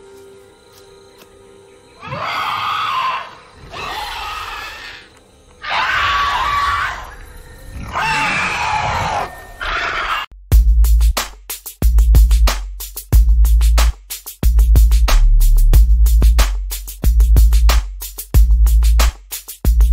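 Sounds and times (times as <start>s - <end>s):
creature screeching: 2.0s - 10.3s.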